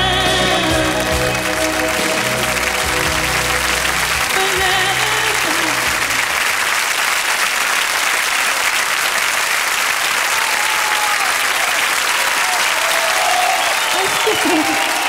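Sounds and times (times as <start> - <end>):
band final chord: 0.0 - 6.4
audience applauding loudly: 0.0 - 15.0.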